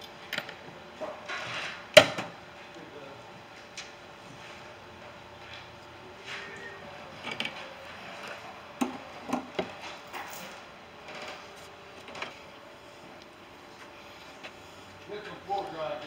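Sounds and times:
tools clicking and knocking: 7.2 - 7.6.

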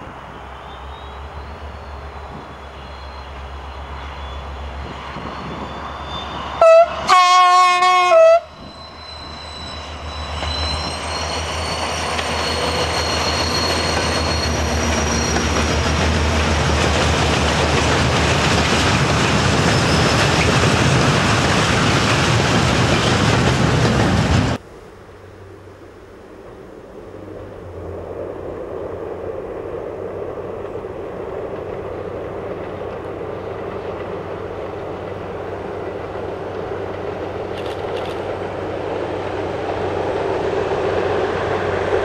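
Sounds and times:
freight train passing: 0.0 - 42.0
train horn: 6.6 - 9.3.

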